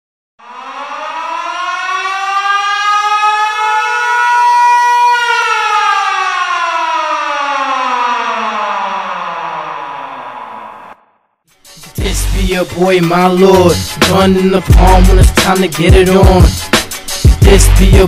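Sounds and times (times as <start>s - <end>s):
siren winding up and down: 0.4s - 11.4s.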